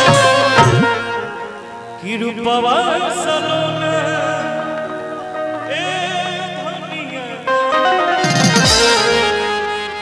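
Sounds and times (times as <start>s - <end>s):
held accompaniment notes: 0.0s - 1.8s, 3.9s - 10.0s
man singing: 2.0s - 9.1s
drumming: 8.2s - 9.2s.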